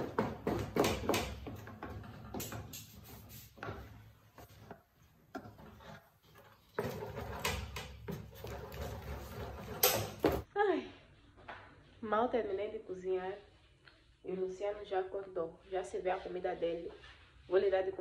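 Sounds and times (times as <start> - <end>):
spoon stirring thick mash: 2.9 - 9.8.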